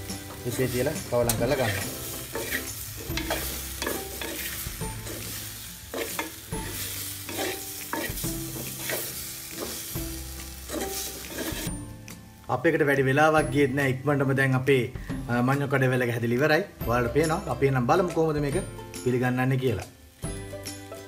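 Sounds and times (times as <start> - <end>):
food sizzling in oil: 0.0 - 12.5, 16.7 - 21.0
spatula scraping and knocking pot: 0.2 - 9.9, 10.7 - 11.7.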